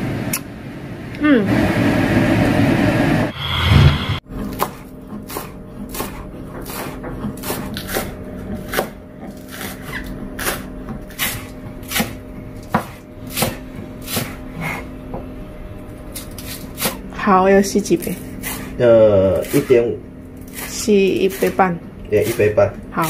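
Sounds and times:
knife chopping on plastic board: 4.4 - 15.3, 18.1 - 19.8, 20.4 - 23.0.

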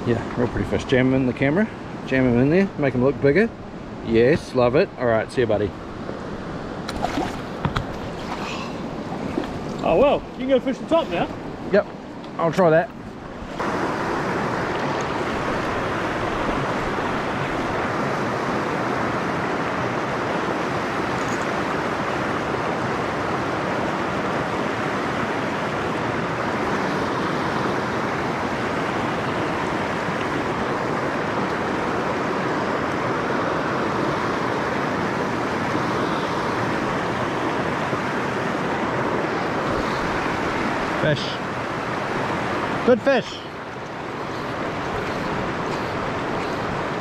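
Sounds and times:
river rapids rushing over stones: 13.4 - 47.0.

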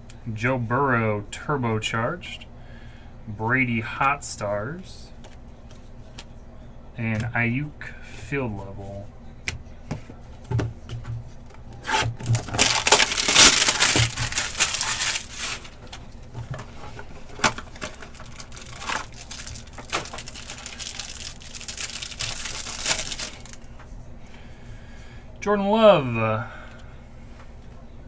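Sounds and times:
packaging crinkling and tearing: 11.8 - 23.6.

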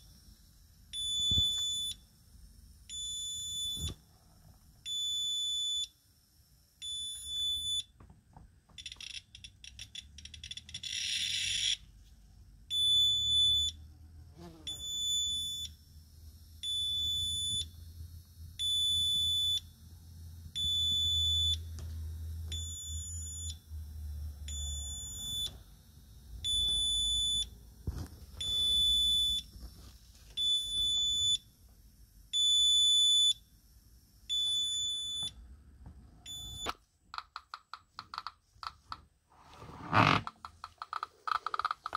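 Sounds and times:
high-pitched alarm beeps: 0.9 - 2.0, 6.8 - 7.9, 8.8 - 11.8, 12.7 - 13.8, 14.7 - 15.8, 16.6 - 17.8, 18.6 - 19.7, 20.6 - 21.7, 22.5 - 23.6, 24.5 - 25.6, 26.4 - 27.6, 28.4 - 29.5, 32.4 - 33.4, 34.3 - 35.4.

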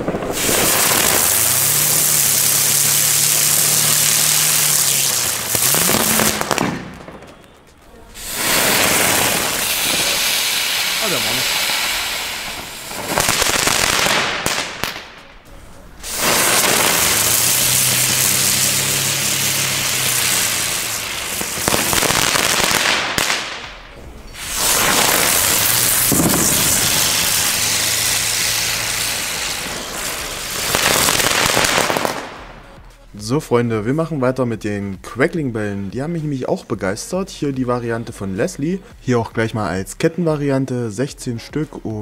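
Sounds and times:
firework ground spinners hissing: 0.0 - 7.0, 8.0 - 32.8.

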